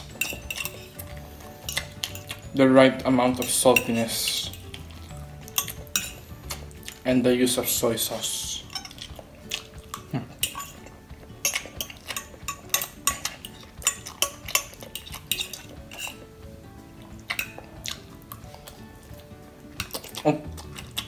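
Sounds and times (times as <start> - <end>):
fork scraping glass dish: 0.0 - 2.4, 10.4 - 16.2.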